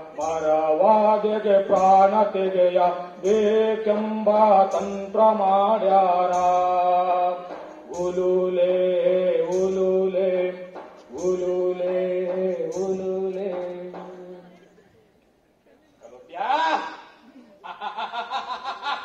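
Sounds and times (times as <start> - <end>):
soft percussive beat: 0.0 - 2.5, 3.1 - 15.4.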